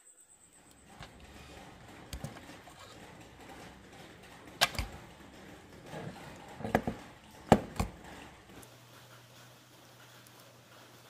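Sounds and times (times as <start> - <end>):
hard objects clicking and knocking: 0.6 - 8.6.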